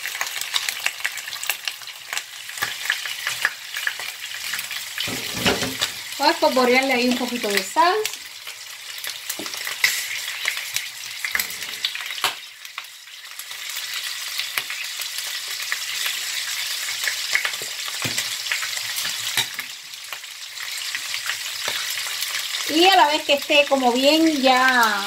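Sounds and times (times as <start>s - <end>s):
meat sizzling in hot oil: 0.0s - 25.0s.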